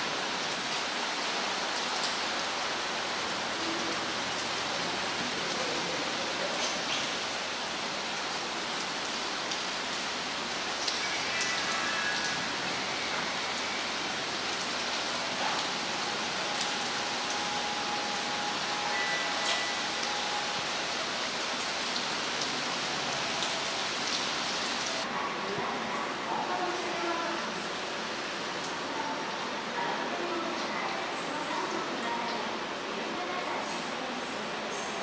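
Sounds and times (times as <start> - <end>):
steady background hiss: 0.0 - 35.0.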